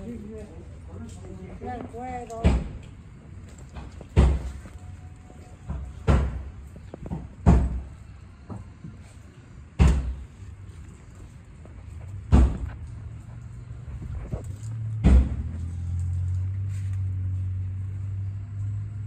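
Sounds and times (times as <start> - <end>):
heavy thuds: 12.2 - 12.8.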